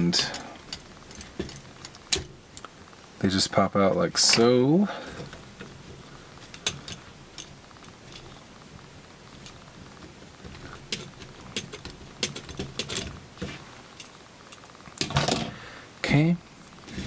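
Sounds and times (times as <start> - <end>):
plastic parts clicking: 0.3 - 2.8, 4.2 - 8.4, 10.4 - 15.5.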